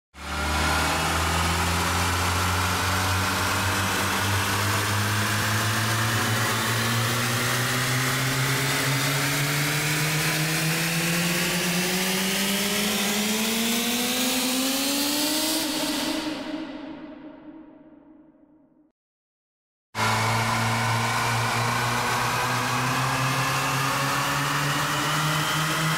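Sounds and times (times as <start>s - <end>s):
cinematic riser tone: 20.0s - 25.9s.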